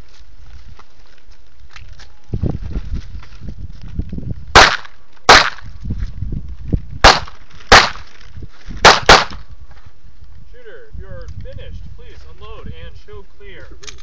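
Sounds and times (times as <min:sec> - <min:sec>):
handgun shots: 0:04.6 - 0:05.6, 0:07.0 - 0:08.0, 0:08.8 - 0:09.4.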